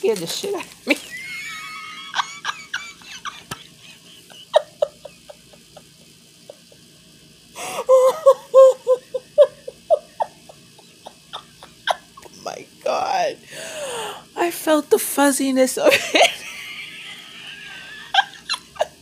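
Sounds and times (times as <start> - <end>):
woman laughing: 0.9 - 6.9, 7.6 - 12.4, 15.8 - 19.0.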